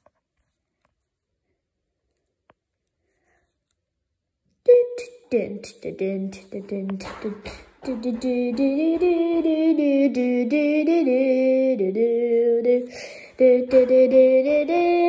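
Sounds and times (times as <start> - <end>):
person singing wordless tune: 4.6 - 15.0.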